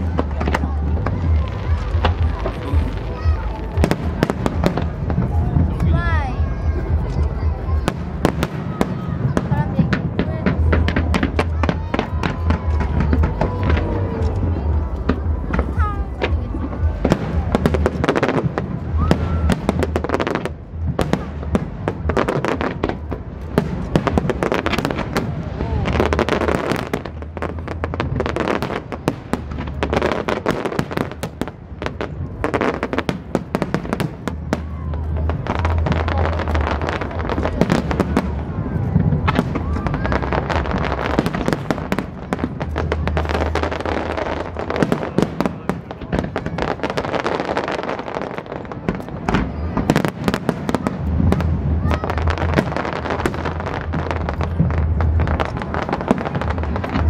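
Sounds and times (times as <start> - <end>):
fireworks bursting with crackles: 0.0 - 57.0
low rumble: 50.6 - 57.0.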